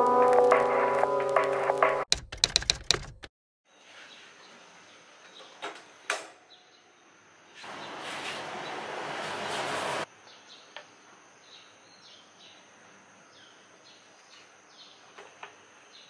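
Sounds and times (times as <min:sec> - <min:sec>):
sharp clicks: 0:02.1 - 0:03.3.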